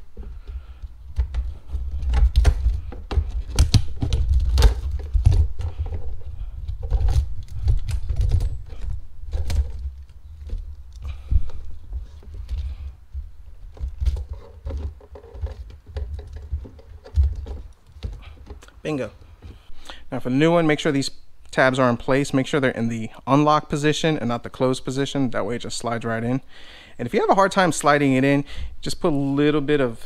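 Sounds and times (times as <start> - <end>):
plastic clicking and rattling: 0.8 - 12.7, 13.7 - 18.7.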